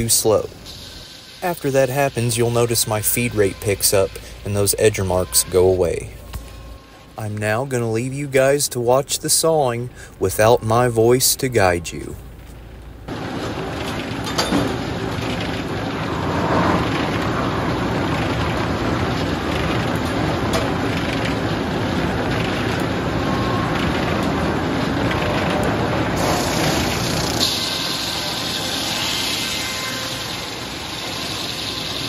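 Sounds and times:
bright hiss: 0:00.0 - 0:07.1, 0:26.2 - 0:32.0
mill machinery running: 0:00.0 - 0:08.0, 0:12.8 - 0:32.0
circular saw spinning: 0:13.3 - 0:32.0.

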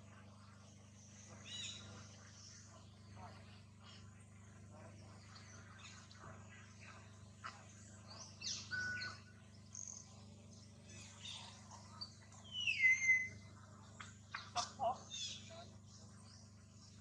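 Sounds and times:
faint low hum: 0:00.0 - 0:17.0
high chirps and whistled calls: 0:01.4 - 0:02.6, 0:07.4 - 0:10.2, 0:10.8 - 0:17.0.

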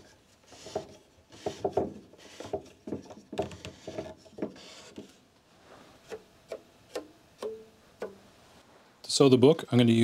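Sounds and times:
wood rubbing: 0:00.0 - 0:06.3
wooden knocks: 0:00.6 - 0:04.6.

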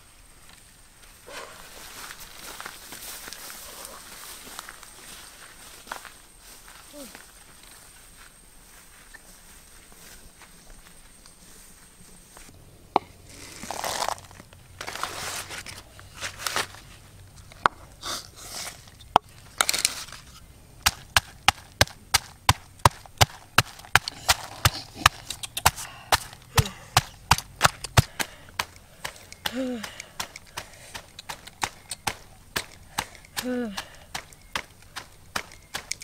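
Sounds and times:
rustling and handling: 0:09.0 - 0:36.0.

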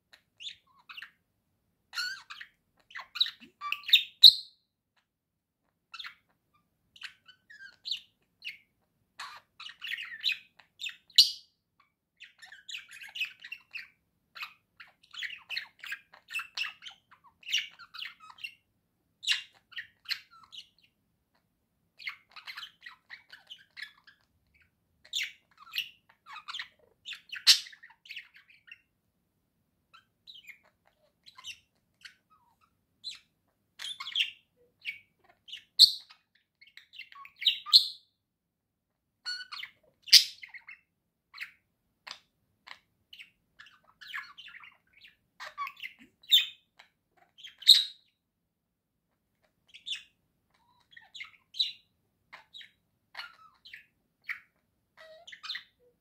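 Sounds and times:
budgerigars chattering and warbling: 0:01.9 - 0:04.4, 0:07.0 - 0:11.4, 0:12.2 - 0:18.6, 0:19.2 - 0:21.0, 0:22.0 - 0:28.9, 0:30.0 - 0:38.0, 0:39.3 - 0:48.1, 0:49.4 - 0:55.8
sharp bird calls: 0:39.3 - 0:48.1.

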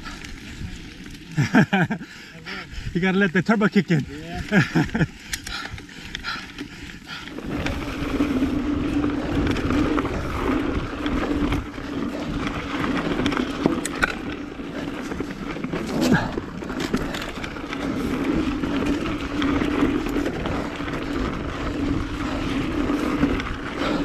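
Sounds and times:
bike tyres rumbling over dirt: 0:00.0 - 0:24.0
bike rattling clicks: 0:03.7 - 0:24.0
wind on microphone: 0:07.3 - 0:14.2.

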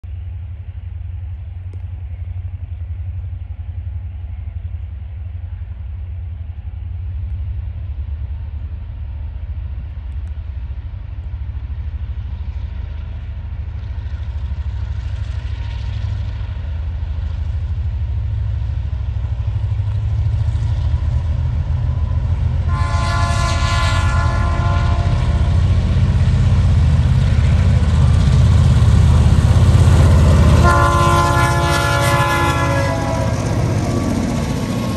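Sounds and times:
diesel locomotive engine drone: 0:00.0 - 0:34.9
locomotive horn blast: 0:22.0 - 0:25.8, 0:30.0 - 0:33.7.

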